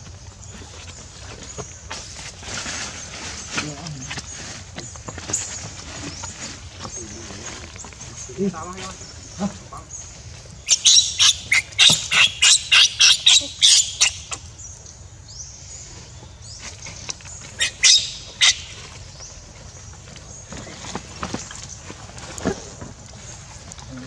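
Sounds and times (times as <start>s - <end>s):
high-pitched animal calls: 10.6s - 14.5s, 17.6s - 18.8s.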